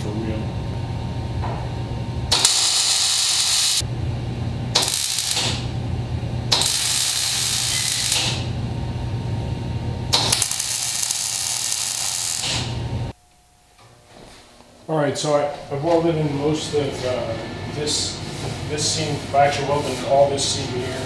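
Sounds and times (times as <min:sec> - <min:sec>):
steady low hum: 0:00.0 - 0:21.0
welder arc hissing and crackling: 0:02.3 - 0:03.9, 0:04.7 - 0:05.8, 0:06.5 - 0:08.6, 0:10.0 - 0:13.2.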